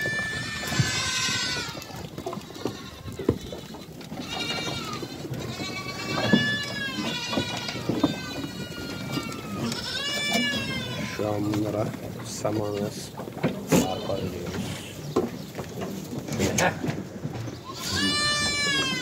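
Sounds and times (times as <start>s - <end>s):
goats bleating: 0.0s - 12.0s, 13.6s - 15.0s, 17.6s - 19.0s.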